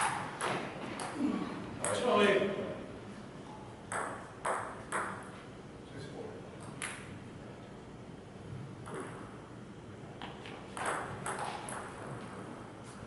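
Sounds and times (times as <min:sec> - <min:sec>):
ping pong ball clicking: 0:03.9 - 0:05.2, 0:08.8 - 0:09.2, 0:10.8 - 0:11.9.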